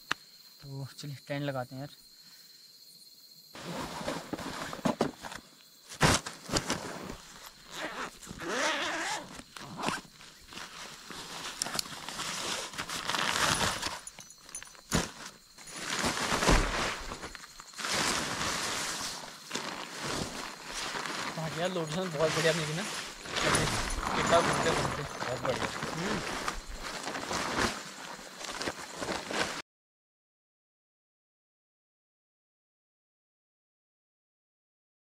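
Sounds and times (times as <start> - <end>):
tent fabric rustling: 3.6 - 29.6.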